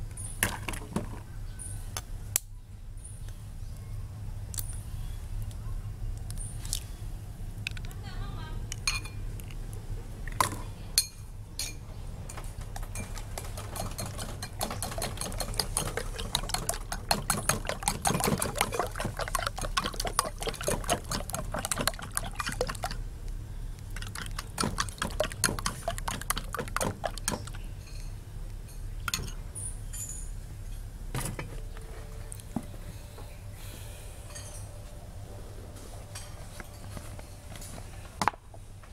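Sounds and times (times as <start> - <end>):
steady low hum: 0.0 - 38.9
spoon beating eggs in bowl: 12.8 - 23.0, 24.0 - 27.7.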